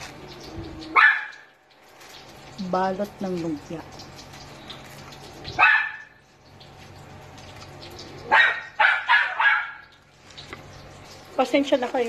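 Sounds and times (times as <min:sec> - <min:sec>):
dog barking: 0:00.9 - 0:01.5, 0:05.6 - 0:06.2, 0:08.3 - 0:09.9.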